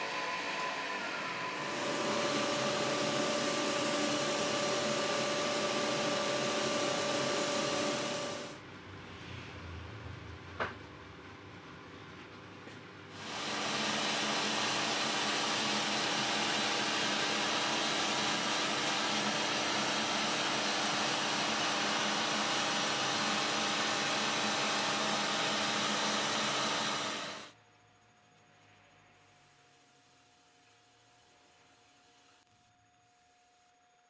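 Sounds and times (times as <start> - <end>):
dust extraction rushing: 0.0 - 8.5, 13.2 - 27.5
power sanding on a lathe: 0.1 - 8.5, 13.2 - 27.5.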